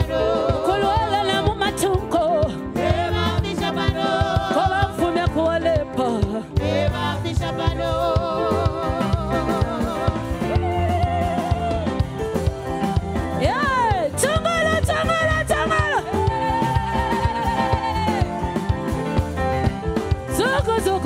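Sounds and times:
woman singing with vibrato: 0.0 - 12.1, 13.4 - 19.2, 20.3 - 21.0
band accompaniment: 0.0 - 21.0
steady drum beat: 0.0 - 21.0.

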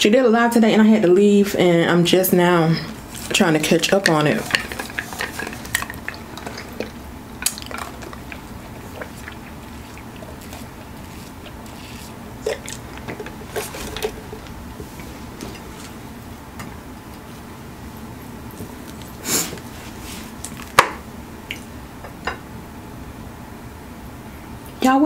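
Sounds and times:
chewing and lip smacks: 4.4 - 14.6.

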